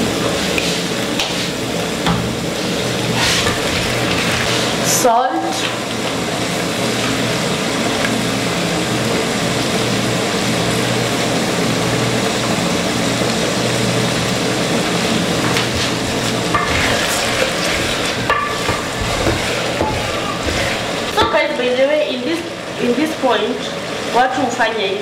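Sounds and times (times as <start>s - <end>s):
vegetables sizzling in a pot: 0.0s - 25.0s
wooden spoon stirring: 15.4s - 21.8s.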